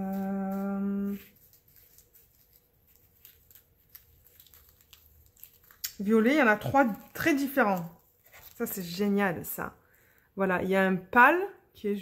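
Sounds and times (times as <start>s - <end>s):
plastic bags rustling: 0.0s - 9.7s.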